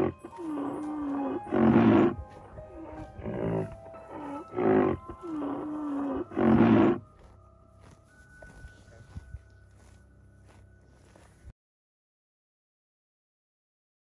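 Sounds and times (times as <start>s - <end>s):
rhinoceros calling: 0.0s - 7.1s.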